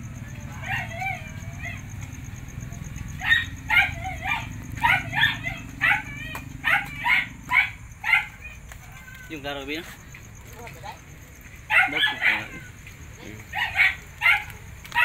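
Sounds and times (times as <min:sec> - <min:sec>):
dog barking: 0:00.6 - 0:01.9, 0:03.1 - 0:08.6, 0:11.7 - 0:12.6, 0:13.5 - 0:15.0.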